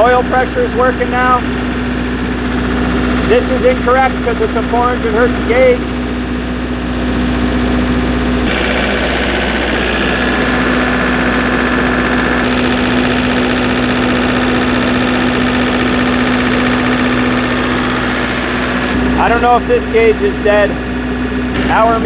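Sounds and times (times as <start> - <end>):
diesel generator engine running: 0.0 - 22.0.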